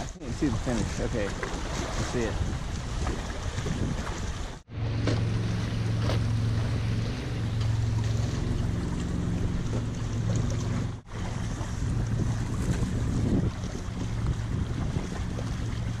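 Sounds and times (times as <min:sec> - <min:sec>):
water rushing past hull: 0:00.0 - 0:16.0
wind buffeting microphone: 0:00.0 - 0:16.0
steady low hum: 0:04.6 - 0:16.0.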